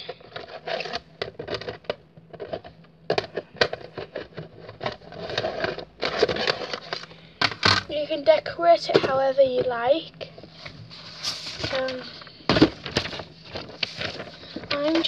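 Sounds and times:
rustling: 0:10.4 - 0:15.0.

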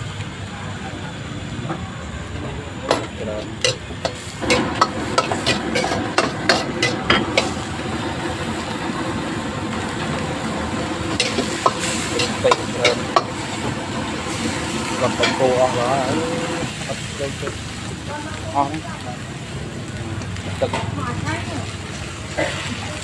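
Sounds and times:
steady sizzling: 0:00.0 - 0:23.0
ladle scraping a wok: 0:03.0 - 0:07.8, 0:11.0 - 0:16.8.

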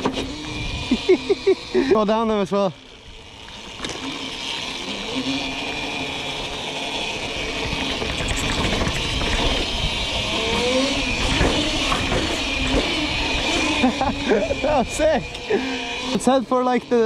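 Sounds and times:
electric motor whining: 0:00.0 - 0:17.0
wind rumble on microphone: 0:00.5 - 0:01.0, 0:07.3 - 0:15.3
tyres and chassis rattling: 0:01.6 - 0:16.4.

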